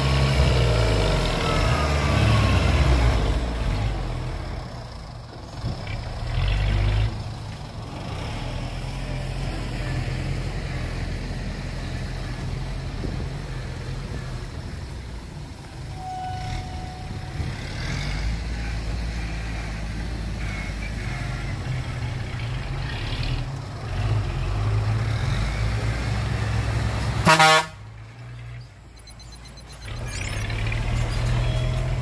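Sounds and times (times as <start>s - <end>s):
diesel truck engine: 0.0s - 32.0s
truck horn toot: 15.9s - 18.2s, 20.4s - 21.6s, 27.2s - 27.8s.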